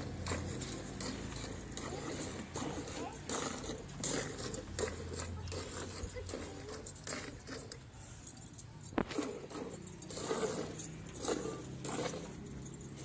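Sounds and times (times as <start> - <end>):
bangles jingling: 0.0 - 13.0.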